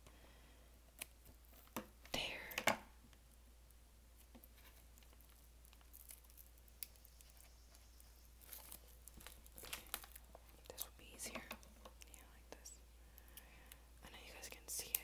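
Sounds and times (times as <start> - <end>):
plastic shrink-wrap crinkling: 4.4 - 10.9.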